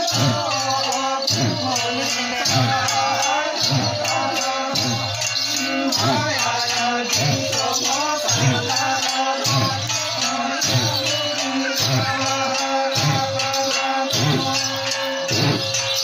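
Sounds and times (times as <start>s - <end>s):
rattling shaker percussion: 0.0s - 16.0s
wavering melody: 0.0s - 16.0s.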